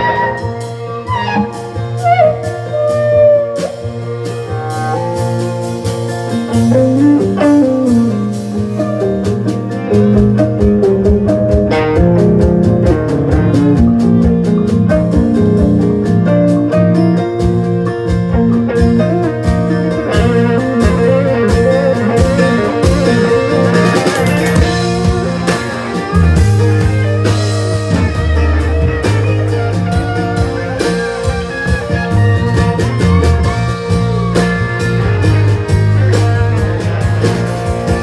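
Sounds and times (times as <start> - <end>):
electric guitar lead: 0.0 - 38.0.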